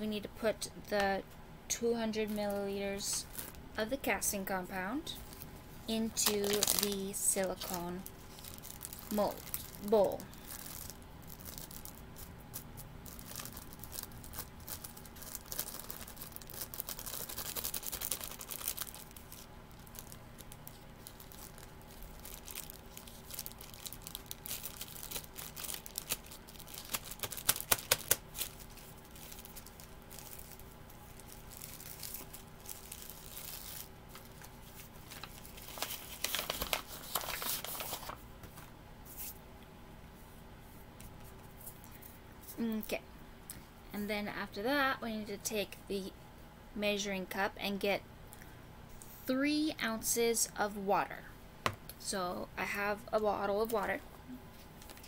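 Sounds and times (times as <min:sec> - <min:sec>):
plastic bag crinkling: 0:02.2 - 0:03.7, 0:04.4 - 0:38.6, 0:54.6 - 0:55.0.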